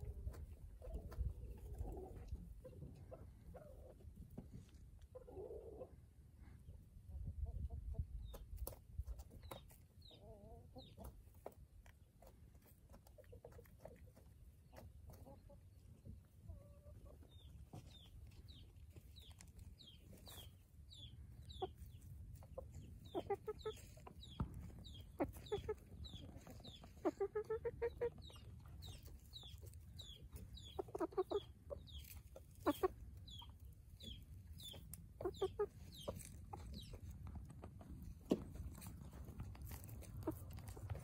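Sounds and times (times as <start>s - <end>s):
chickens clucking: 0.0s - 41.0s
pecking and scratching in gravel: 10.8s - 15.8s, 17.5s - 41.0s.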